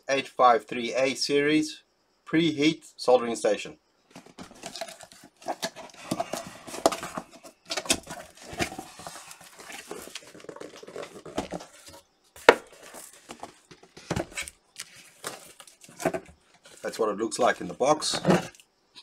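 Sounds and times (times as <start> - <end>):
cardboard box scraping and rustling: 4.1 - 17.0.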